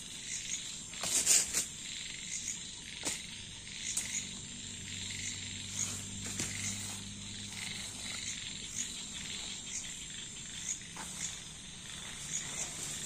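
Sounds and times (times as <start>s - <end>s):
crickets chirping: 0.0s - 13.0s
frogs croaking: 0.0s - 13.0s
tent rustling and pole clacks: 0.5s - 1.8s, 5.6s - 10.0s, 10.6s - 13.0s.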